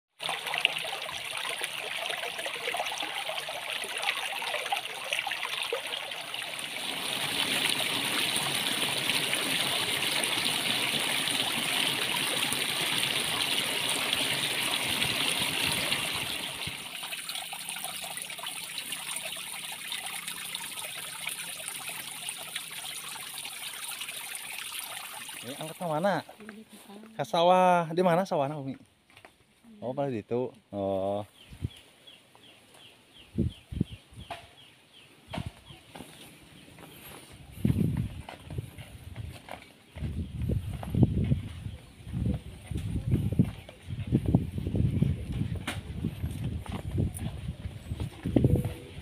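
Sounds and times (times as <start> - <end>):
stream rippling over rocks: 0.1 - 26.2
water pouring from pipe: 0.1 - 26.2
small cascade pouring: 0.2 - 26.2.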